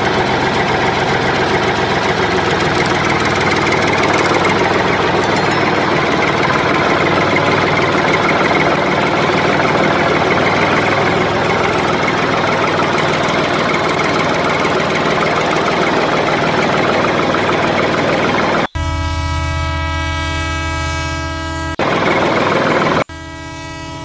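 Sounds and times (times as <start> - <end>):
tractor engine running: 0.0 - 5.2, 8.7 - 18.7.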